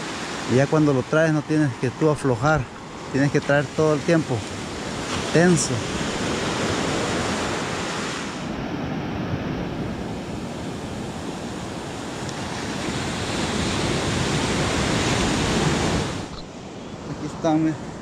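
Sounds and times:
surf washing onto beach: 0.0s - 18.0s
wind on microphone: 4.4s - 17.1s.

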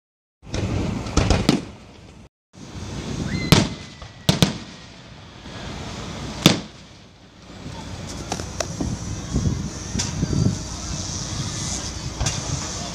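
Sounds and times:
firework shells bursting: 3.3s - 8.8s.

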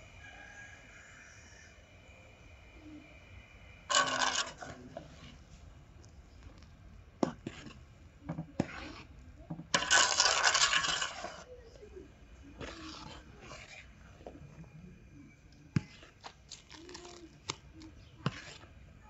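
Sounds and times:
utensils scraping a pot: 3.9s - 5.7s, 6.4s - 19.0s.

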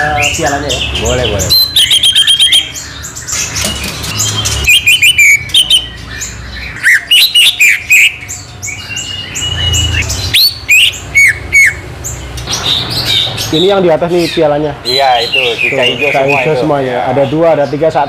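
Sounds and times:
bird singing whistled notes: 0.0s - 11.8s.

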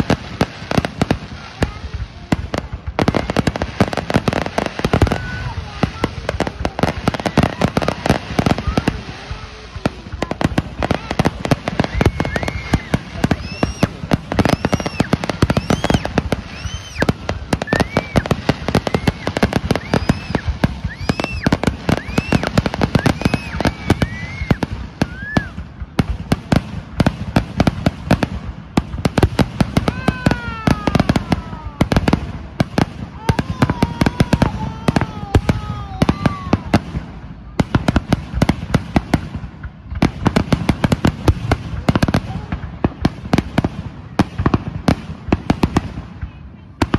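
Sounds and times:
fireworks whistles: 0.0s - 39.3s
fireworks bangs and crackling: 0.0s - 46.9s.

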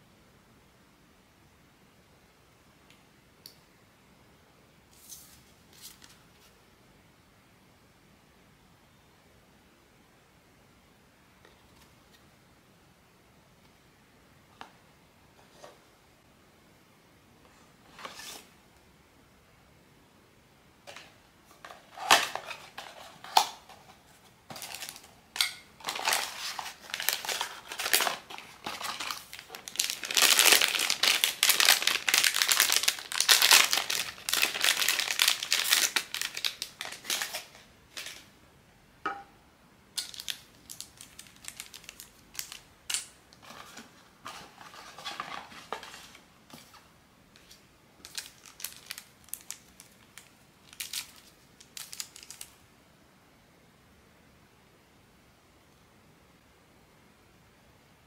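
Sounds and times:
packaging crinkling: 24.5s - 38.3s, 40.0s - 46.8s, 47.4s - 52.6s.

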